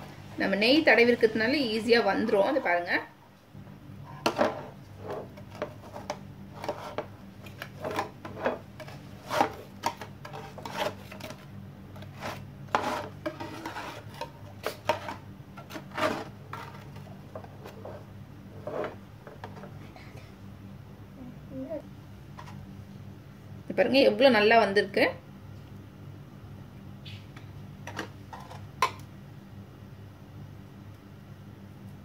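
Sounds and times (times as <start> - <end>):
steady low hum: 0.0 - 32.0
knife scraping a steel tray: 7.9 - 11.4, 12.0 - 16.9.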